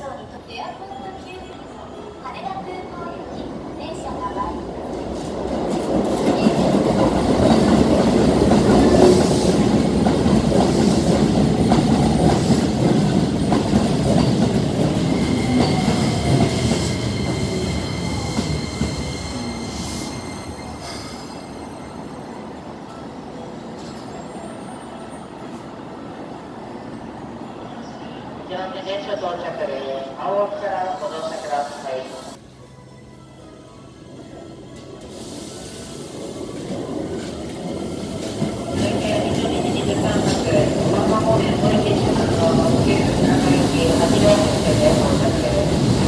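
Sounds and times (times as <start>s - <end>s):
train wheels rumbling on track: 3.4s - 21.9s, 34.8s - 46.0s
high brake squeal: 15.0s - 22.4s.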